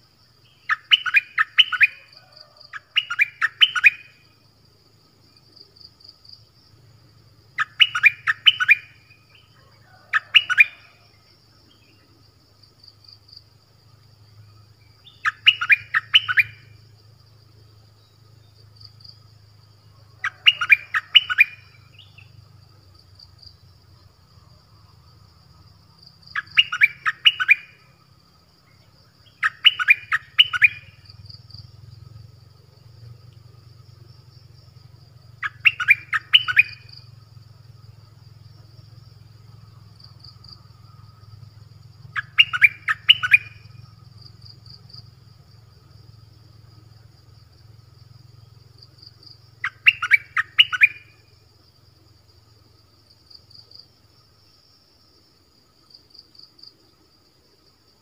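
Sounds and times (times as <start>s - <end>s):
songbird chirping phrases: 0.3s - 4.2s, 7.5s - 12.3s, 12.9s - 16.8s, 17.4s - 28.0s, 28.6s - 32.2s, 35.3s - 51.2s.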